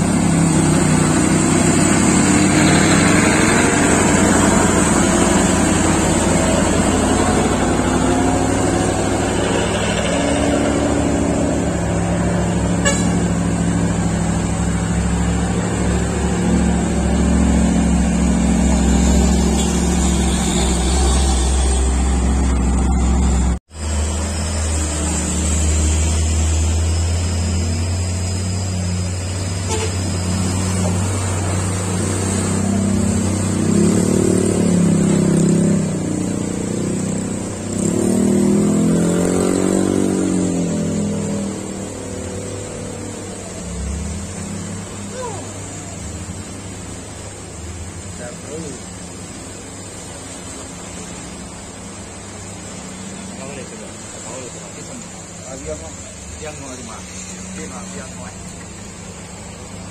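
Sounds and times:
diesel truck engine drone: 0.0s - 59.9s
high hiss: 36.9s - 59.9s.

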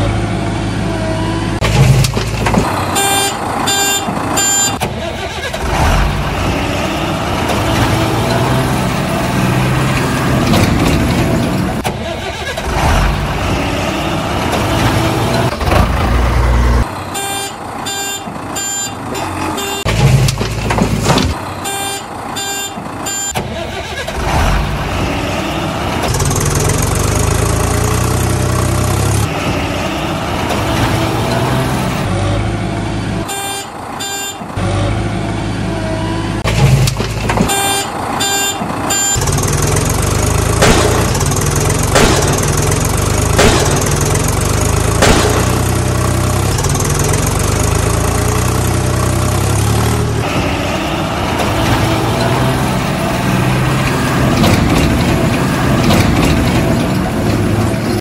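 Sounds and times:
heavy vehicle engine running: 0.0s - 58.0s
reversing beeps: 3.8s - 4.8s, 18.0s - 19.0s, 22.4s - 23.4s, 37.5s - 39.3s.

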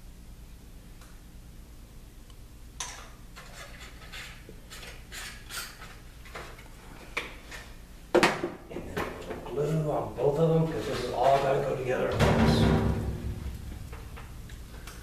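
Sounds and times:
steady low hum: 6.0s - 15.0s.

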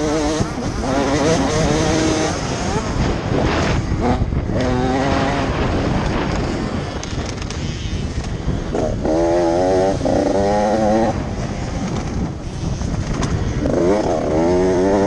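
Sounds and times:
dirt bike engine revving: 0.0s - 15.0s
wind rumble on microphone: 0.0s - 15.0s.

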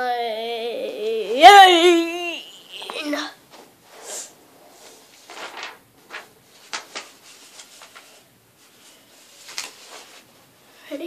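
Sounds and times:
paper rustling and crinkling: 4.7s - 10.4s.

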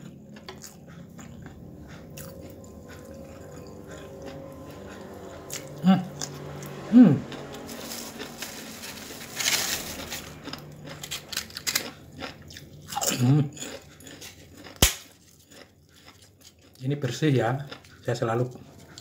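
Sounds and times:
man chewing: 0.0s - 19.0s
man humming: 5.8s - 7.4s
cracker snapping: 7.9s - 12.0s, 14.6s - 15.4s.

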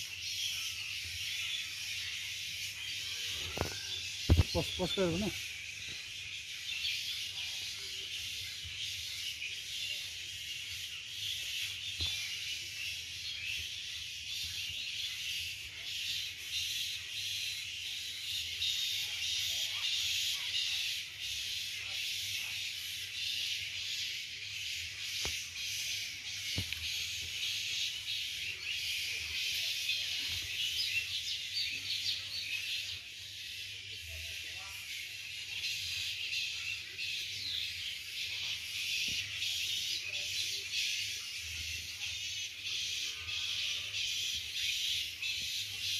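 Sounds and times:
bird chirps: 0.0s - 45.9s
insect chorus buzzing: 2.4s - 5.7s.

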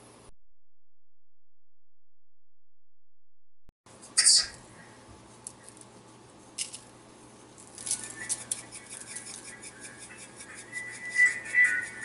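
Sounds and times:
seasoning shaker rattling: 6.5s - 12.0s.

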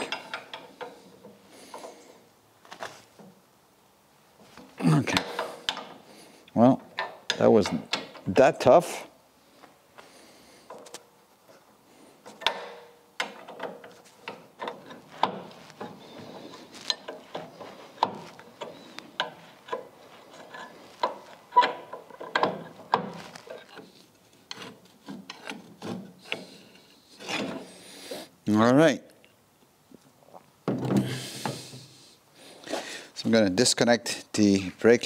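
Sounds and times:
wrench metallic clicks and scrapes: 0.0s - 2.1s, 12.2s - 27.8s.

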